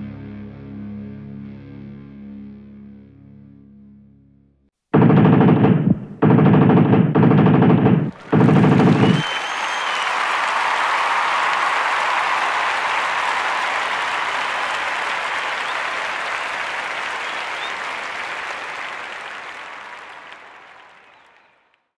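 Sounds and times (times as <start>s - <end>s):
crowd applauding: 8.1s - 22.0s.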